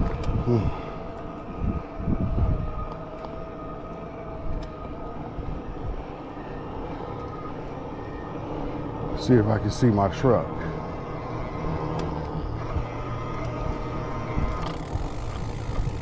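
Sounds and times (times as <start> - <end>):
electric motor whine: 0.0 - 16.0
wind rumbling on microphone: 0.0 - 16.0.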